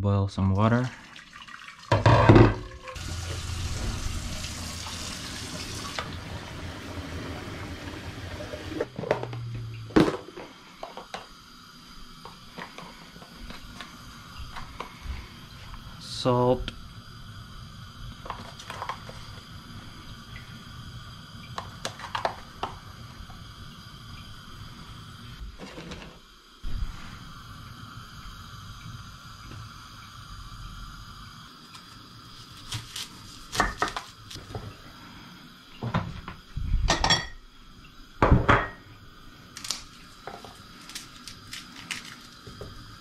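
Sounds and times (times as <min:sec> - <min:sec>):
steady low hiss: 0:10.5 - 0:32.6
dishes clinking: 0:36.9 - 0:37.4
garlic peeling crackling clicks: 0:39.6 - 0:39.9.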